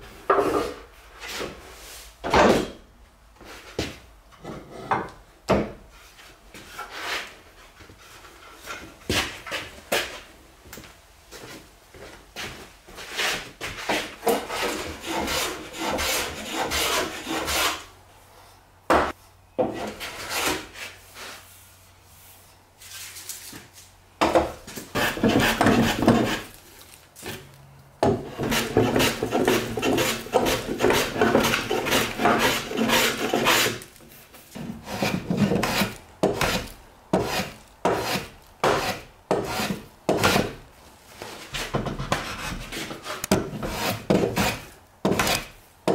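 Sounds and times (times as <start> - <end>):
hand plane shaving wood: 13.2 - 17.8, 24.9 - 26.6, 28.2 - 33.8, 34.8 - 40.6, 41.5 - 45.5.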